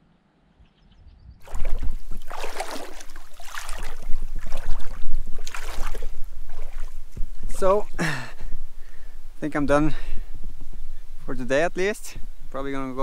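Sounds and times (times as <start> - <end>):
faint bird chirps: 0.0 - 1.4
water splashing: 1.4 - 8.2.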